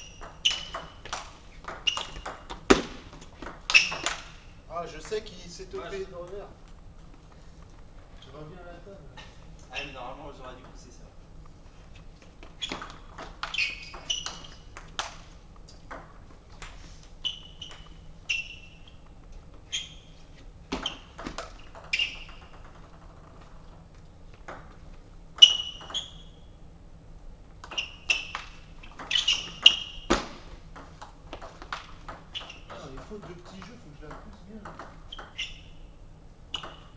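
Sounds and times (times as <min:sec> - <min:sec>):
table tennis ball clicking: 0:00.0 - 0:02.6, 0:27.6 - 0:29.9, 0:30.7 - 0:35.8, 0:36.5 - 0:36.9.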